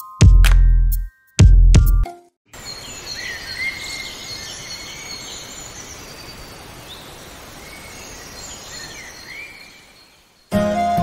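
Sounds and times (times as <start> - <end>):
birds chirping: 2.5 - 10.5.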